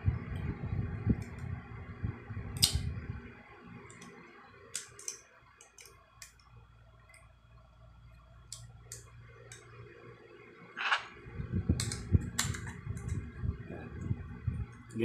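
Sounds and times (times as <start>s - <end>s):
low handling rumble: 10.8s - 15.0s.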